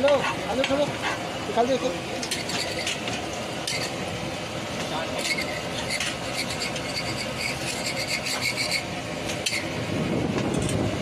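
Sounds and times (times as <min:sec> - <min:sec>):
spatula scraping a griddle: 0:02.2 - 0:04.0, 0:05.2 - 0:09.7.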